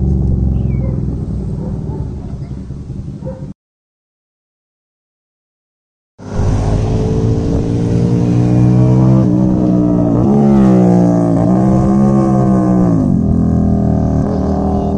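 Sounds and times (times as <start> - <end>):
motorcycle engine with loud exhaust: 6.2 - 14.9.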